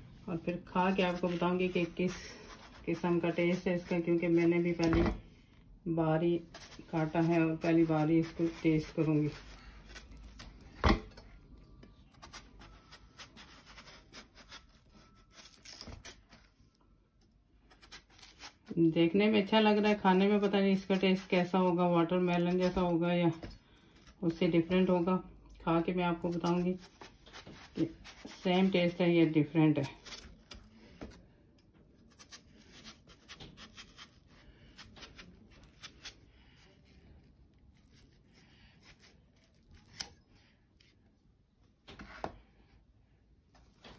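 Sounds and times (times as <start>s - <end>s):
knife cutting watermelon: 0.5s - 5.2s, 6.4s - 11.0s, 12.1s - 16.4s, 17.7s - 18.8s, 26.1s - 30.8s, 32.0s - 36.2s, 37.8s - 40.9s.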